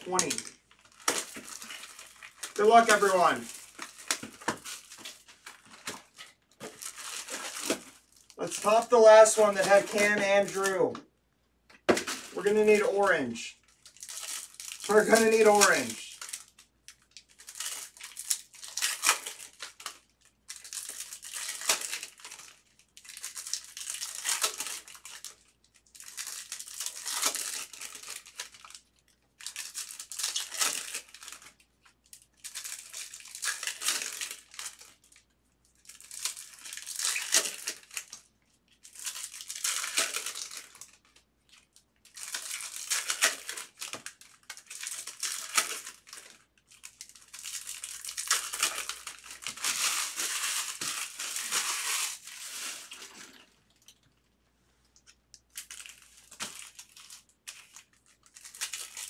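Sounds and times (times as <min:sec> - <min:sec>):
wrappers crinkling and tearing: 0:00.0 - 0:10.9, 0:11.9 - 0:54.3, 0:55.0 - 0:59.0
cards being handled: 0:08.5 - 0:11.0.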